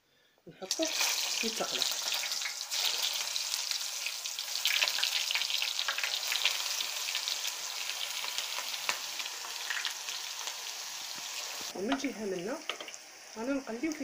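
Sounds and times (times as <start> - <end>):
eggplant sizzling in hot oil: 0.6 - 14.0.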